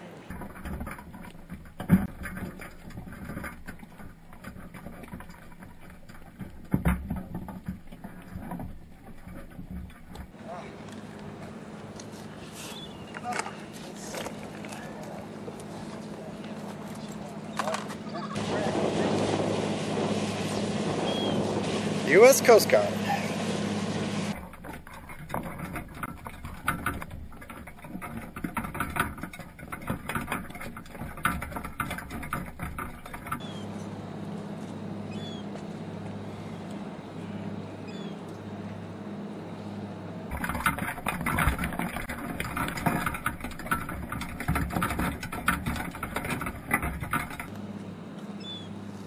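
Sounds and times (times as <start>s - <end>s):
low hum: 0.3s - 49.0s.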